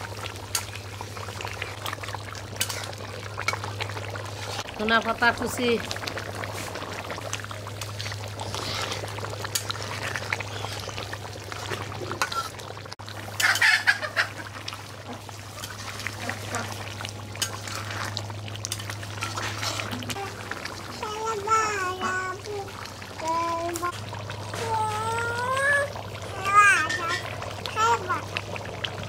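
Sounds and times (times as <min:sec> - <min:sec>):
curry bubbling in a pot: 0:00.0 - 0:29.0.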